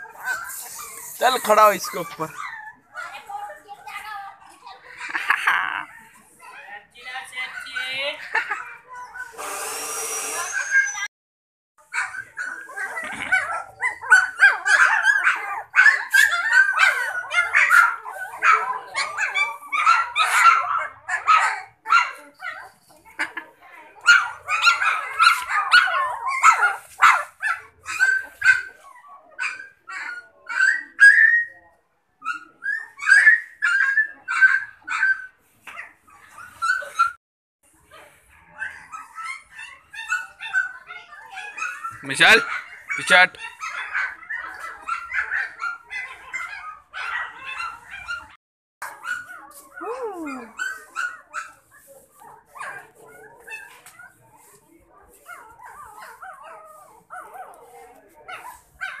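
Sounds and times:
puppy whining: 0.0s - 3.2s, 7.8s - 11.1s, 11.9s - 23.0s, 32.3s - 37.2s
puppies yipping and whining: 0.0s - 3.3s, 7.5s - 11.1s, 11.8s - 23.3s, 23.9s - 37.2s, 37.9s - 59.0s.

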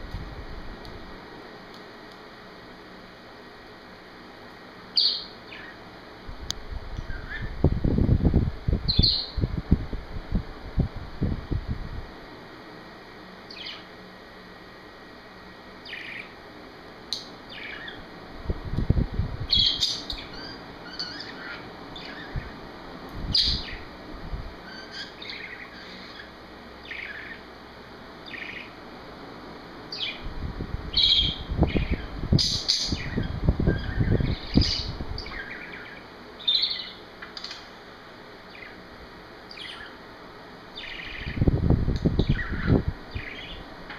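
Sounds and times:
wind rumbling on microphone: 6.3s - 12.1s, 18.4s - 19.8s, 22.3s - 24.6s, 30.2s - 35.4s, 41.1s - 43.6s.

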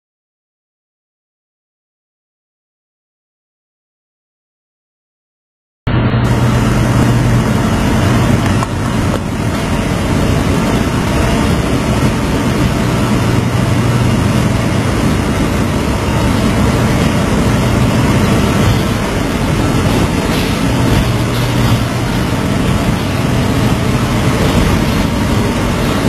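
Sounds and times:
vehicle engine droning: 5.9s - 26.0s.

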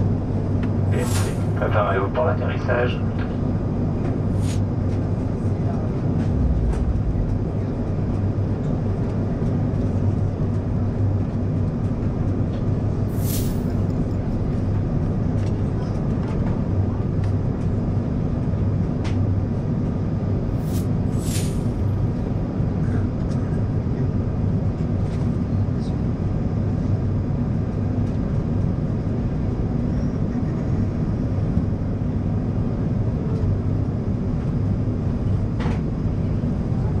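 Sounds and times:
engine rumble: 0.0s - 37.0s
low steady hum: 0.0s - 37.0s
airflow rush: 0.8s - 1.8s, 4.2s - 9.1s, 13.1s - 13.9s, 20.5s - 22.2s.

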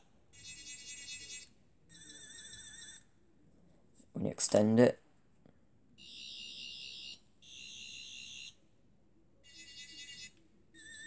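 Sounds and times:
toy electronic warbling buzz: 0.4s - 3.0s, 6.0s - 8.6s, 9.4s - 11.0s.

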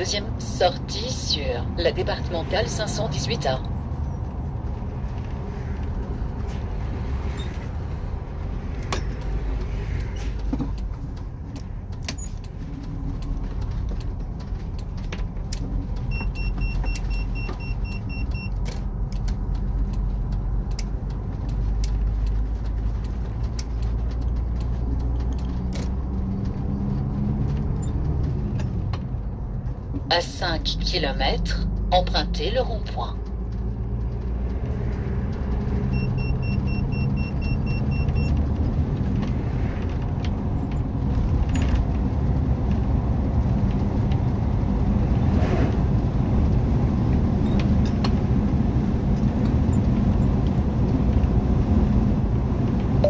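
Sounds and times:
engine and road drone: 0.0s - 53.0s
light rattles and clicks: 8.6s - 17.6s, 18.5s - 30.1s
short electronic beeps: 16.1s - 18.5s, 35.9s - 38.3s.

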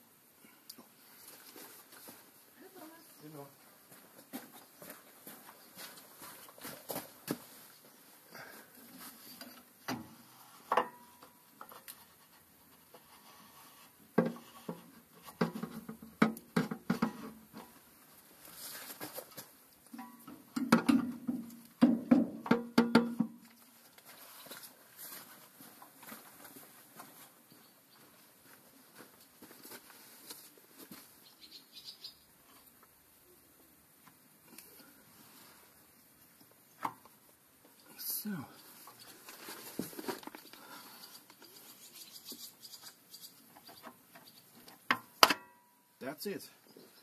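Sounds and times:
hard knocks on metal: 20.6s - 23.3s.

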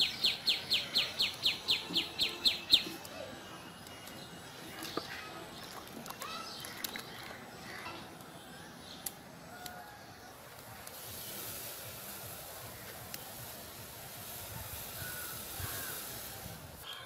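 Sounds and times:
bird chirps: 0.0s - 7.4s
sugar pouring hiss: 10.5s - 16.9s.

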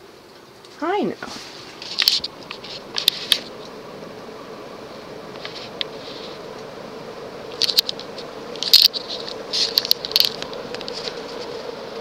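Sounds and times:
ceiling fan humming: 0.0s - 12.0s
sharp clicks and rattles: 7.6s - 9.0s, 9.6s - 11.0s.

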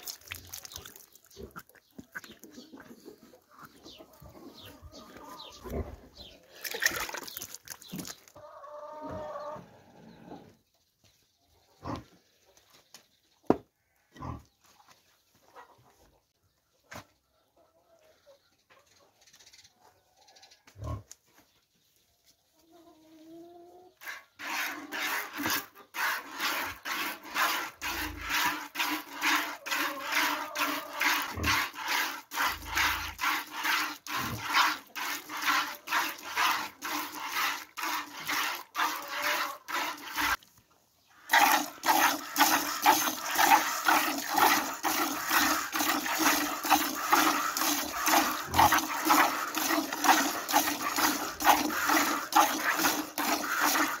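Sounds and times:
milk squirting into plastic bucket: 0.0s - 2.6s, 6.5s - 8.4s, 24.0s - 40.4s, 41.3s - 54.0s.

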